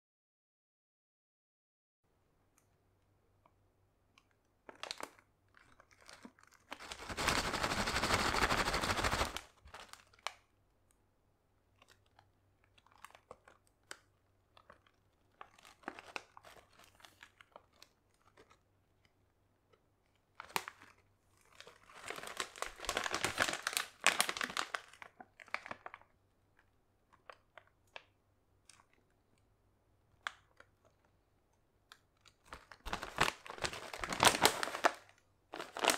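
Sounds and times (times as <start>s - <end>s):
small crinkles and clicks: 3.4s - 11.0s, 11.6s - 35.9s
plastic chip bag crackling: 4.6s - 10.4s, 14.6s - 18.6s, 20.4s - 26.1s, 32.3s - 35.9s.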